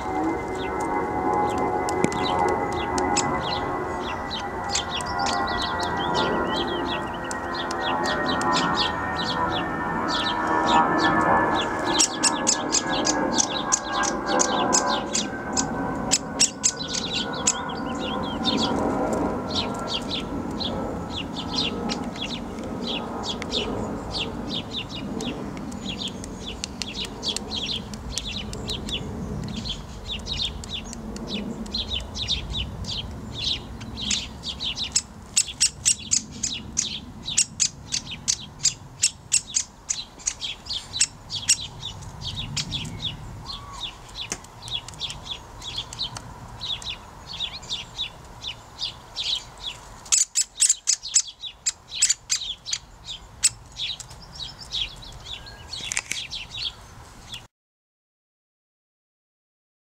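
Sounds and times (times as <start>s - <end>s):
woodpecker calls: 0.0s - 18.8s, 21.4s - 56.8s.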